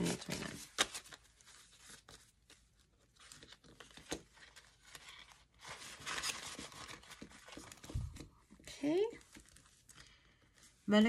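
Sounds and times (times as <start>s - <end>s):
paper bills rustling: 0.0s - 8.2s.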